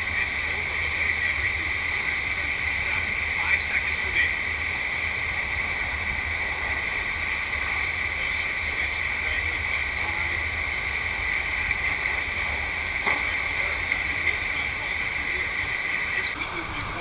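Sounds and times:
rushing water: 0:00.0 - 0:17.0.

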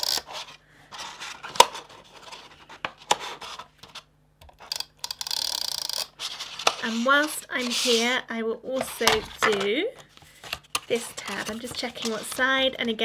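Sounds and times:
card rustling: 0:06.1 - 0:08.2, 0:08.8 - 0:13.0.

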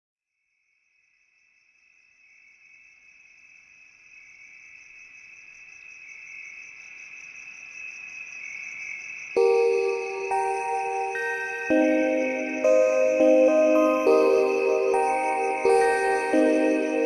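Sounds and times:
high-pitched insect trill: 0:02.0 - 0:17.0.

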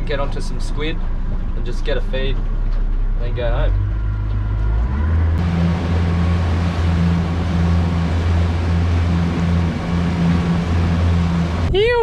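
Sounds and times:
outboard motor drone: 0:04.0 - 0:12.0
wind and water hiss: 0:05.4 - 0:12.0.

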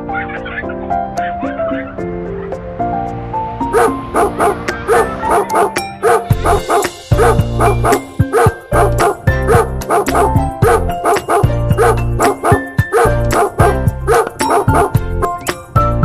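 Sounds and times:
background music with bass: 0:00.0 - 0:16.0
puppy yapping: 0:03.8 - 0:15.0.

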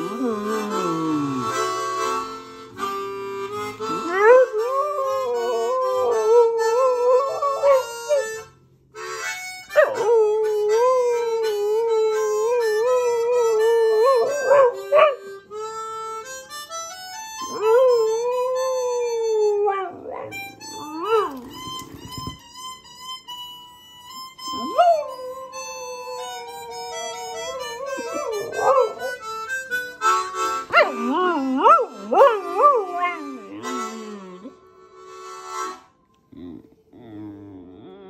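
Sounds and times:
harmonica playing: 0:00.0 - 0:36.2
dog howling: 0:03.9 - 0:08.3, 0:09.7 - 0:15.2, 0:17.4 - 0:21.7, 0:24.5 - 0:29.3, 0:30.7 - 0:34.6.

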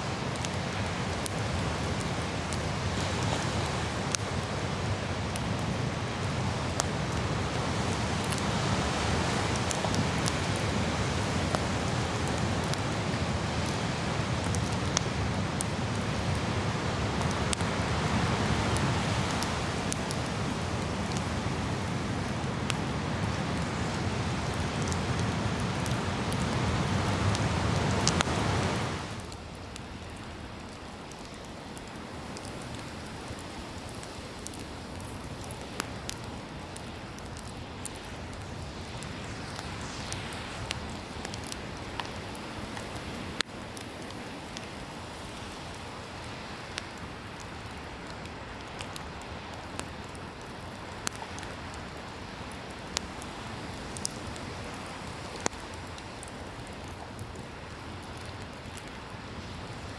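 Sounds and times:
ocean surf: 0:00.0 - 0:47.5
campfire crackling and popping: 0:00.0 - 0:59.9.

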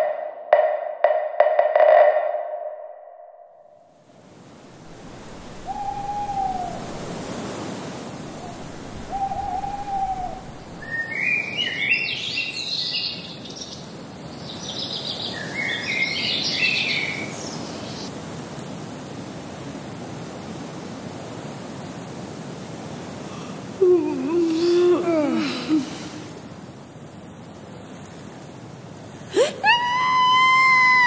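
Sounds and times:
owl hooting: 0:05.5 - 0:07.1, 0:08.4 - 0:11.0
songbirds twittering: 0:08.4 - 0:18.1.

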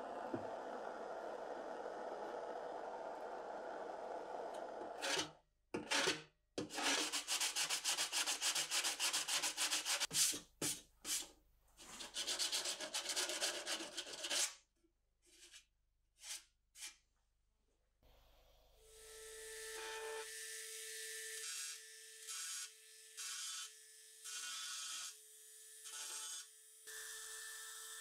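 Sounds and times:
sanding rubbing on sheet metal: 0:06.7 - 0:14.5.

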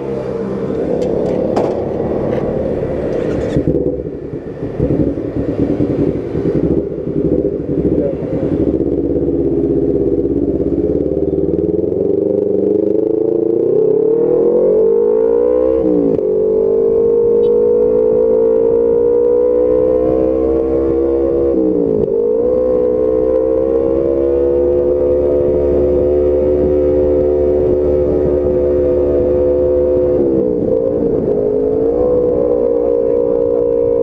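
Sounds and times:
motorcycle engine running: 0:00.0 - 0:14.4.

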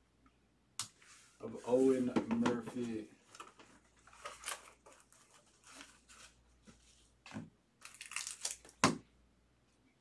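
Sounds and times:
soft scrapes and rustles: 0:01.0 - 0:07.2.

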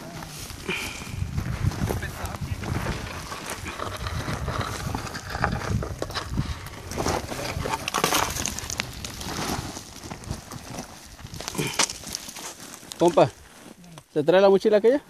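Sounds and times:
carcass dragged over gravel: 0:00.0 - 0:13.8
wind rumble on microphone: 0:00.5 - 0:11.5
boots crunching on gravel: 0:06.9 - 0:13.6.

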